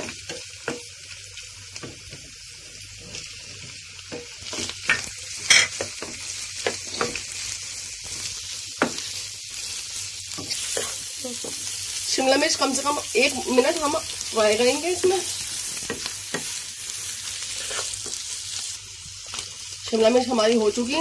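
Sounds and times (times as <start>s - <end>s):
food sizzling in oil: 0.0s - 21.0s
wooden spatula scraping pan: 17.5s - 18.2s.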